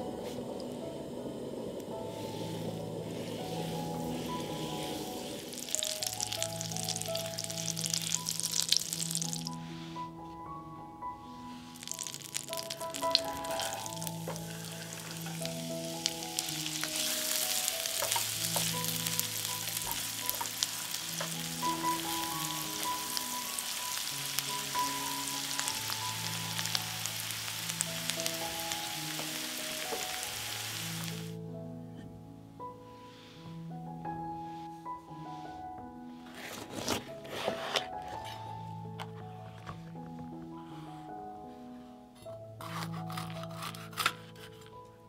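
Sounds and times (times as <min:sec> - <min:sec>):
background music: 0:00.0 - 0:45.0
food sizzling in hot oil: 0:02.2 - 0:09.6, 0:11.6 - 0:31.4.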